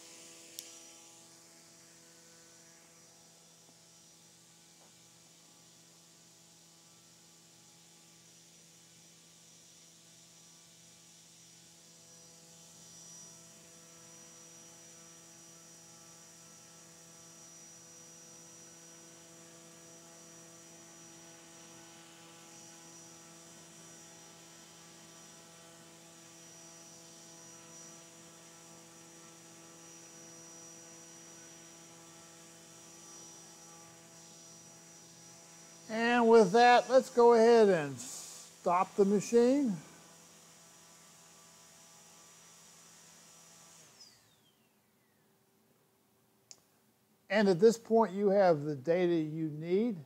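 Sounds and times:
high motor whine: 0:00.0 - 0:07.2, 0:10.2 - 0:40.7.

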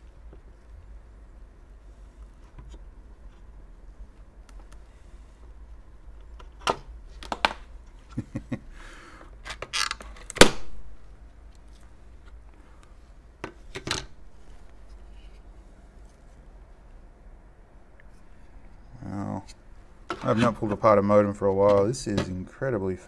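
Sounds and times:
plastic parts clicking and knocking: 0:06.3 - 0:07.6.

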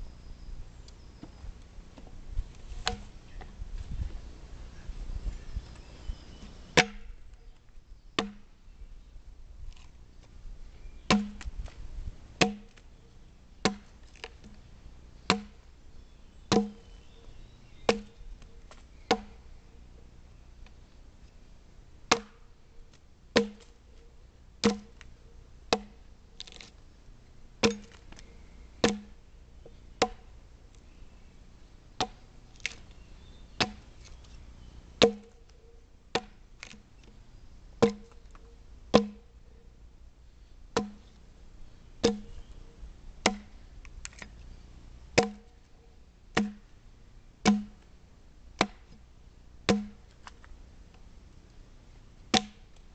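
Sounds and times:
axe chopping log: 0:02.8 - 0:03.1, 0:06.8 - 0:07.2, 0:08.2 - 0:08.5, 0:11.1 - 0:11.5, 0:12.4 - 0:12.8, 0:13.6 - 0:14.6, 0:15.3 - 0:15.6, 0:16.5 - 0:16.9, 0:17.9 - 0:18.2, 0:19.1 - 0:19.4, 0:22.1 - 0:22.5, 0:23.4 - 0:23.8, 0:24.6 - 0:25.1, 0:25.7 - 0:26.7, 0:27.6 - 0:28.0, 0:28.8 - 0:29.2, 0:30.0 - 0:30.3, 0:32.0 - 0:32.8, 0:33.6 - 0:33.9, 0:35.0 - 0:35.4, 0:36.1 - 0:36.8, 0:37.8 - 0:38.3, 0:38.9 - 0:39.2, 0:40.8 - 0:41.1, 0:42.0 - 0:42.5, 0:43.2 - 0:43.6, 0:45.2 - 0:45.6, 0:46.4 - 0:46.7, 0:47.4 - 0:47.8, 0:48.6 - 0:49.0, 0:49.7 - 0:50.0, 0:52.3 - 0:52.7.

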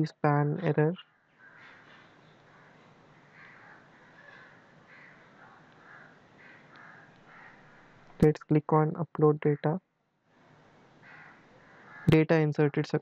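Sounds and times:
short harsh bird calls: 0:01.4 - 0:08.0, 0:11.0 - 0:12.1
low room hiss: 0:01.6 - 0:13.0.

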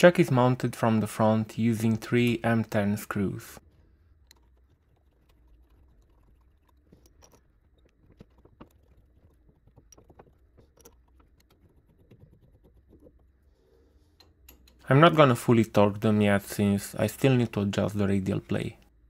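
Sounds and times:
metal screws clicking and scraping: 0:04.1 - 0:14.8
allen key turning screws: 0:04.2 - 0:13.4, 0:14.1 - 0:14.8.

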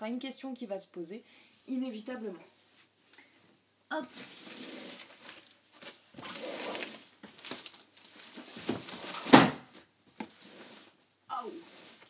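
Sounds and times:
packaging rustling and crinkling: 0:04.1 - 0:12.0.

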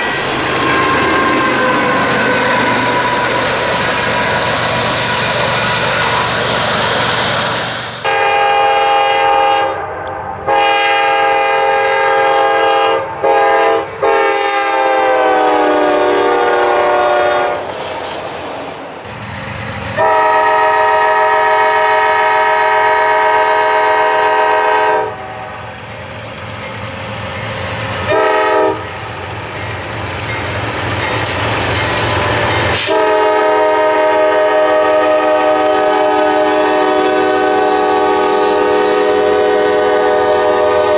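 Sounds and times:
rumble of passing trains: 0:00.0 - 0:40.9
locomotive air horn blasts: 0:08.0 - 0:17.7, 0:20.0 - 0:25.6, 0:28.1 - 0:29.0, 0:32.7 - 0:40.9.

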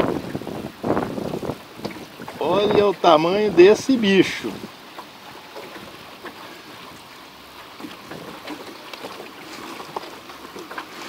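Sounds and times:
wind hiss: 0:00.0 - 0:05.0
river water: 0:00.0 - 0:11.0
clicks and rustles of fishing gear: 0:07.8 - 0:11.0.

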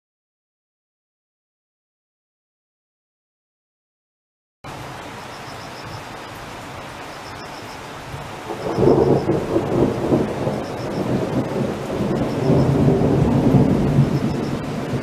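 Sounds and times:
steady hiss: 0:04.7 - 0:12.6
thunder rumbling: 0:08.1 - 0:15.0.

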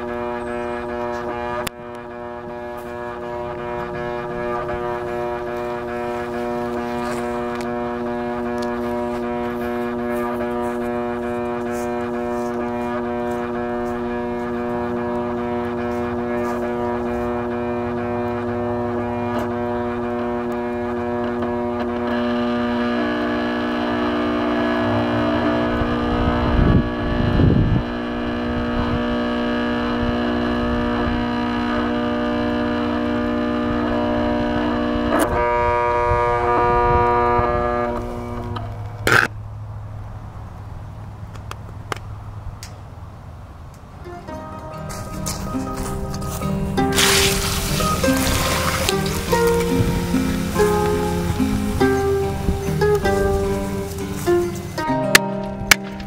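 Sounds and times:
vacuum cleaner motor whining: 0:00.0 - 0:39.2, 0:44.1 - 0:56.0
sharp crack: 0:53.9 - 0:56.0.

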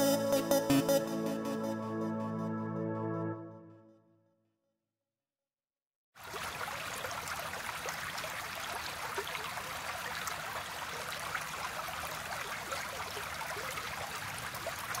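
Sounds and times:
water trickling in a stream: 0:06.2 - 0:15.0.

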